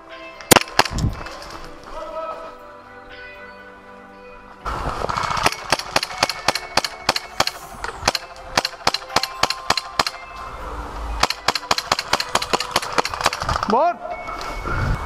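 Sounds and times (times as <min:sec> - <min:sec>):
airsoft gunfire cracks: 0:00.5 - 0:01.0, 0:05.2 - 0:10.2, 0:11.2 - 0:13.7.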